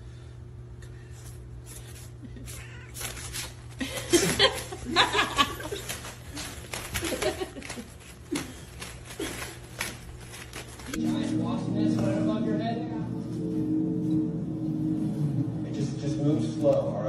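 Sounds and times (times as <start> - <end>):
person laughing: 3.8 - 9.7.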